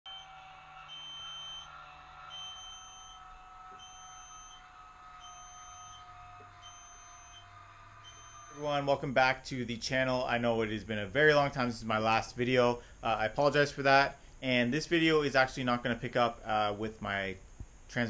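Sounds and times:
electronic beep: 0.1s - 8.9s
faint steady whine: 0.1s - 18.0s.

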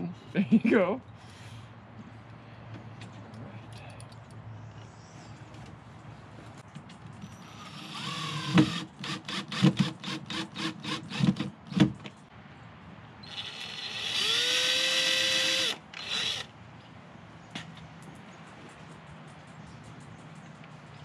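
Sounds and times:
cordless drill drilling into wood: 7.4s - 11.4s, 13.3s - 16.5s.

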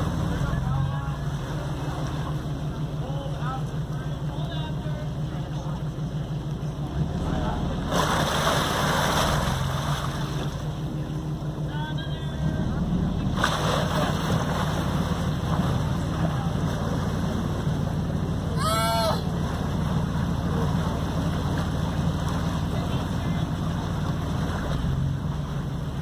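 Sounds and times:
propeller churning water: 0.0s - 26.0s
ship engine rumbling: 0.0s - 26.0s.

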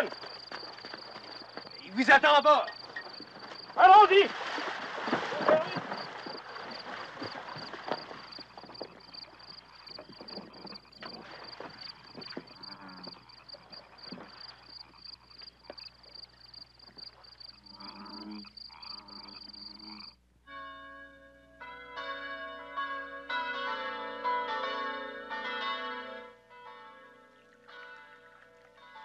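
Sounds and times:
people wading through water: 0.0s - 19.7s
cricket chirping trill: 0.0s - 20.2s.

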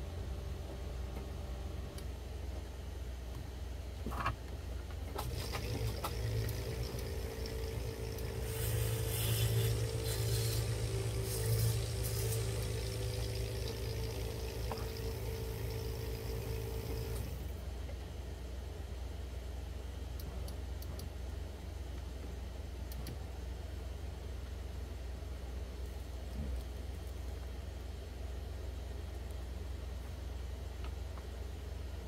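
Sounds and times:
low electrical hum: 0.0s - 32.0s
small motor running: 5.2s - 17.5s.

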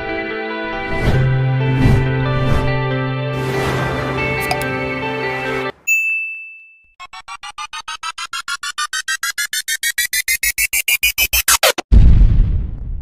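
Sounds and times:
intro music: 1.4s - 5.8s
electronic ding: 5.9s - 7.0s
synthesizer riser pulsing tone: 7.0s - 11.8s.

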